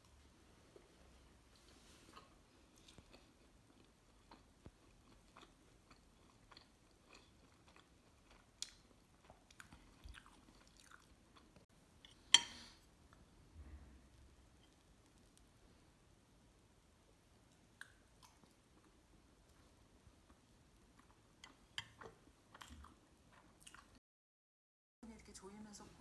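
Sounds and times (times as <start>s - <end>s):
chewing and mouth smacks: 1.6s - 11.6s, 17.5s - 18.9s, 20.2s - 24.0s.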